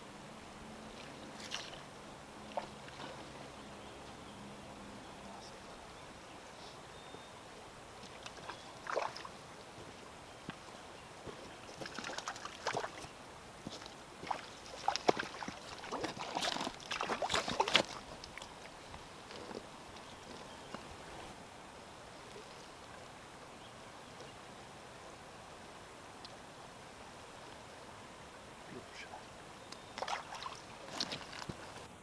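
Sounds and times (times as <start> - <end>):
fish splashing and thrashing in water: 14.2 - 18.5, 30.0 - 31.4.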